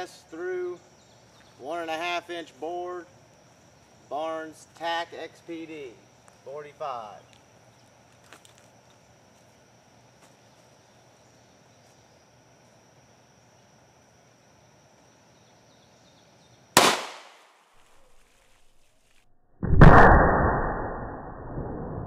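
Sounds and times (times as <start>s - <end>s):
pistol shot: 16.8s - 17.4s
slowed-down gunshot boom: 19.6s - 22.0s.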